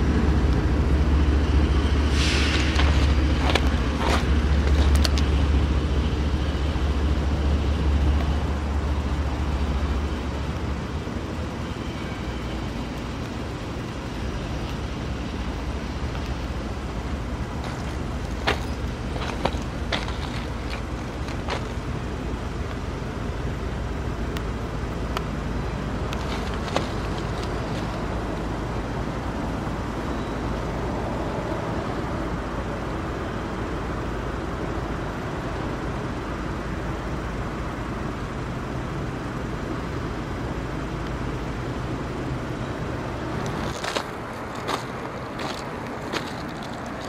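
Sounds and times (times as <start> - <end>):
cars driving over railroad crossing: 0.0 - 47.0
diesel locomotive humming: 0.0 - 47.0
tyres clicking over rails: 15.8 - 22.8, 25.1 - 28.5.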